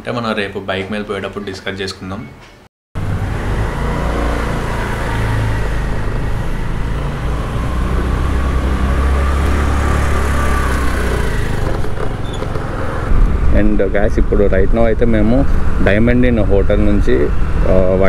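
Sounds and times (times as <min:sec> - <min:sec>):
scooter engine running: 0:03.0 - 0:13.4
road and air noise: 0:03.0 - 0:18.0.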